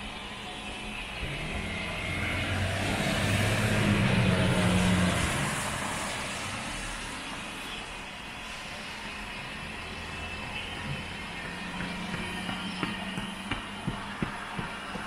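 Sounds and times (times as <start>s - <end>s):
vehicle passing with low hum: 1.2s - 7.5s.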